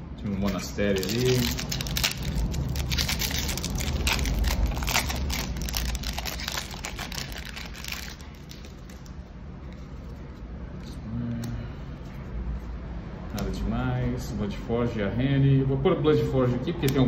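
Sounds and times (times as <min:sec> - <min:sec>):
foil wrapper crinkling: 0:00.2 - 0:09.2
cards being handled: 0:00.2 - 0:13.6.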